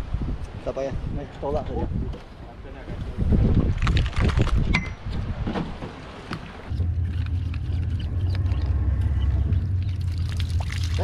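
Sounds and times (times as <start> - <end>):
boat engine drone: 6.5 - 11.0.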